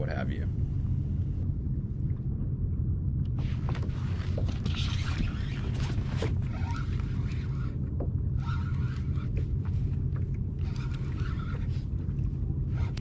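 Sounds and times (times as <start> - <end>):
wind rumbling on microphone: 0.0 - 13.0
water lapping against kayak: 3.4 - 13.0.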